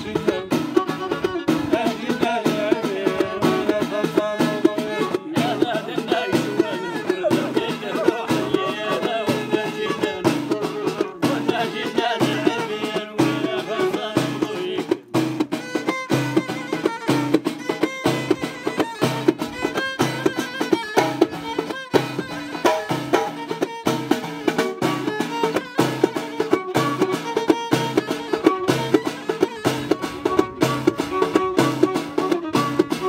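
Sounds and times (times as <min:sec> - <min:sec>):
violin melody: 0:00.0 - 0:14.6, 0:15.5 - 0:33.0
frame drums beating: 0:00.0 - 0:33.0.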